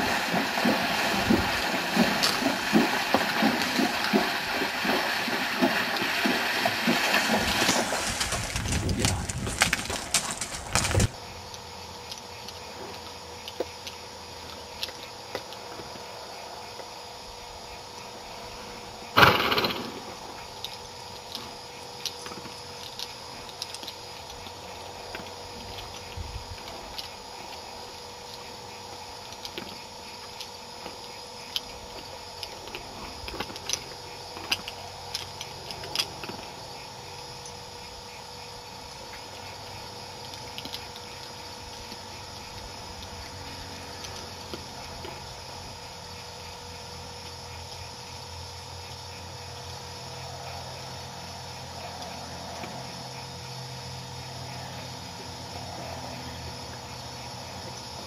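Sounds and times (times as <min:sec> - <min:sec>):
hooves crunching on gravel: 0:00.0 - 0:11.2
hooves splashing in water: 0:00.0 - 0:11.2
faint hum: 0:00.0 - 0:58.0.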